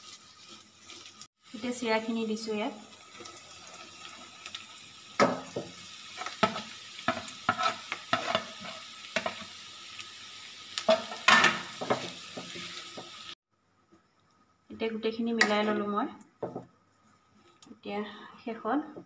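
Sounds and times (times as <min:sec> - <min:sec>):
faint sizzle: 0:00.0 - 0:19.0
spatula scraping pan: 0:06.1 - 0:09.5.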